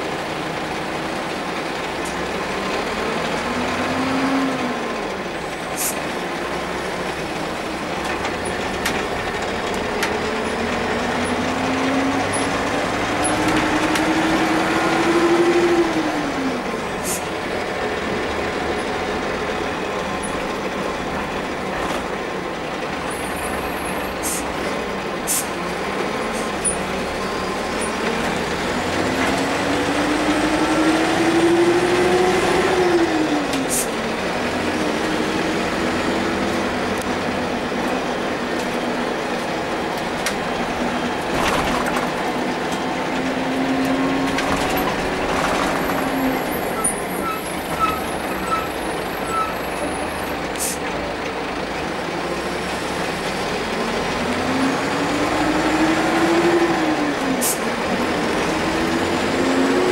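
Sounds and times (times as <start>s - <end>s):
bus diesel engine: 0.0s - 59.9s
knocks and rattles: 41.2s - 43.2s, 44.2s - 46.8s.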